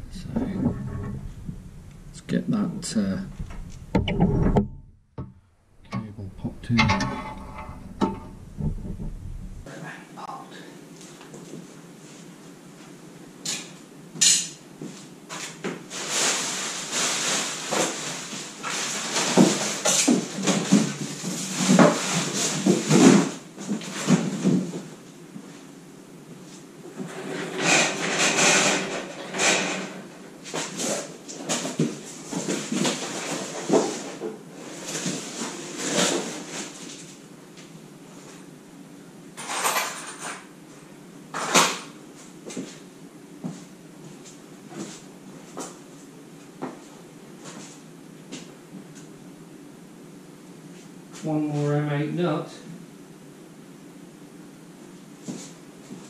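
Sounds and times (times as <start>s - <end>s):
steel parts scraping and rattling: 0.0s - 4.9s, 5.9s - 9.7s.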